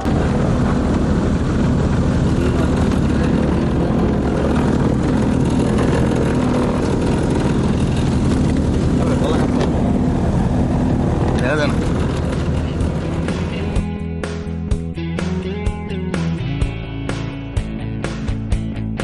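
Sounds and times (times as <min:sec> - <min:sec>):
road noise: 0:00.0 - 0:16.2
vehicle engine drone: 0:00.0 - 0:18.7.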